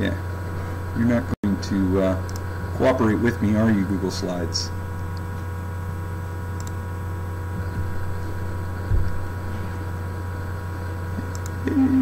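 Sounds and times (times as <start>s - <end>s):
electrical hum: 0.0s - 12.0s
short low thump: 8.9s - 9.3s.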